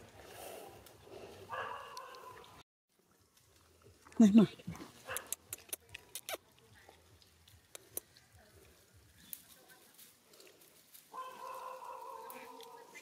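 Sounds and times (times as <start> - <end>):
dry leaves crackling: 6.4 - 13.0.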